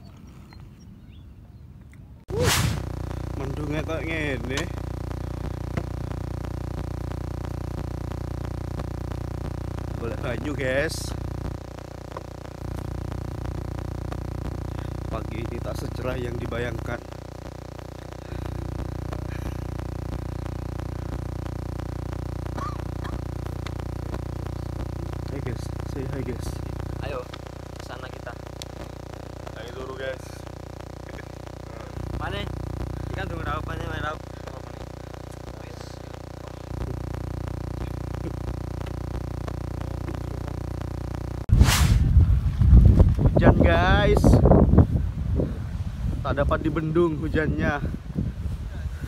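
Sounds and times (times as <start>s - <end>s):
electronic buzz with ticking: 2.3s - 48.6s
wind buffeting microphone: 42.0s - 46.5s, 47.4s - 49.0s.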